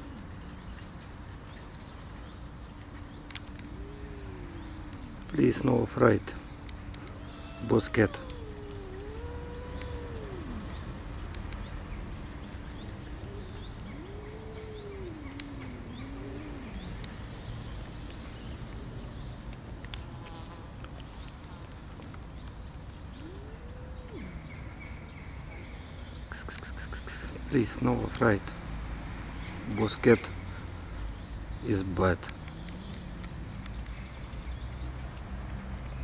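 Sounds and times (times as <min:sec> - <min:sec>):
low background rumble: 0:00.0 - 0:19.7
faint bird chirps: 0:03.1 - 0:11.8, 0:12.5 - 0:19.8, 0:22.9 - 0:27.4
angry cat yowling: 0:03.6 - 0:05.8, 0:07.0 - 0:11.0, 0:13.1 - 0:17.4, 0:23.2 - 0:24.8, 0:32.4 - 0:33.7.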